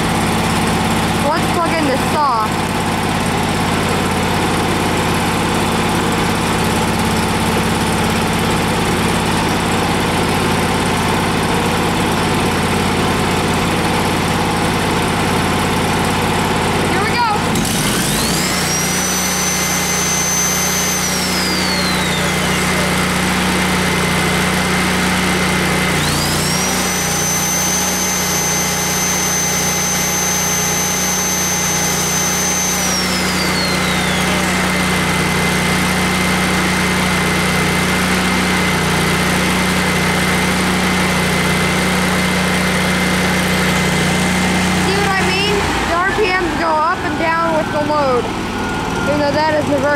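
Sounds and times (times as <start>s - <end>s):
generator engine running: 0.0s - 49.9s
circular saw whine: 16.9s - 49.9s.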